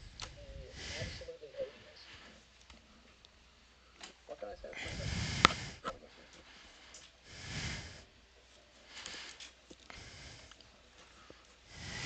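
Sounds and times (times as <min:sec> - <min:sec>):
man exhaling into microphone: 0:04.9 - 0:05.8, 0:07.3 - 0:08.0, 0:11.7 - 0:12.0
faint clicks: 0:09.0 - 0:11.6.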